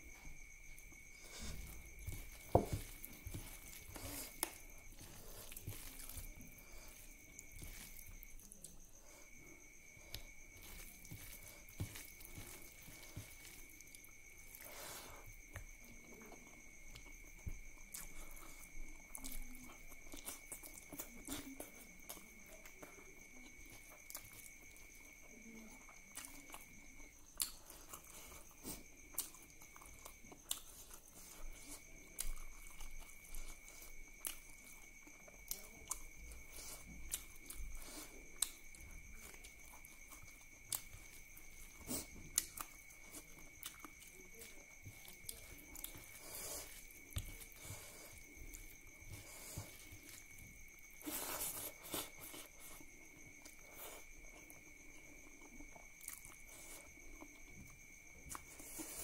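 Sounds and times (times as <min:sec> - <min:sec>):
hand squishing wet curry and rice: 0:00.0 - 0:59.0
open-mouthed chewing and lip smacks: 0:25.8 - 0:59.0.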